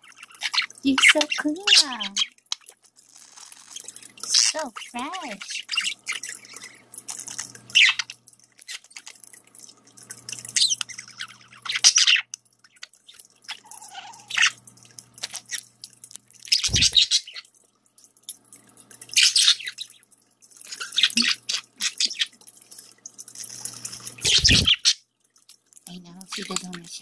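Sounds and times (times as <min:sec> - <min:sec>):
water fountain trickling: 0:00.0 - 0:27.0
budgerigars chirping: 0:16.5 - 0:17.4, 0:24.2 - 0:25.0.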